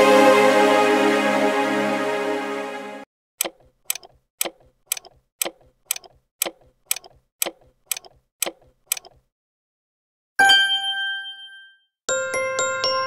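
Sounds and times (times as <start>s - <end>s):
clock ticking: 3.4s - 9.3s.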